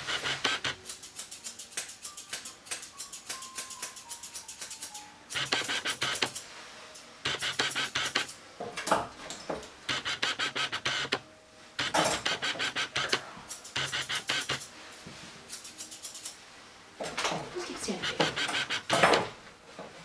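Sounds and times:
grooming shears snipping: 0.0s - 6.4s, 7.3s - 8.4s, 11.8s - 14.7s, 15.5s - 16.4s, 17.6s - 19.2s.

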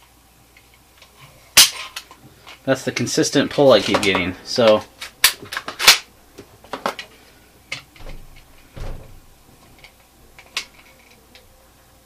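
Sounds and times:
dull knocks: 8.0s - 9.4s.

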